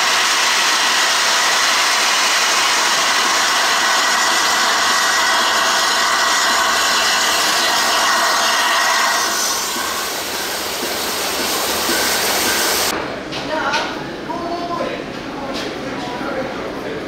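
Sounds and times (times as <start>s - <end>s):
steam locomotive venting steam: 0.0s - 12.9s.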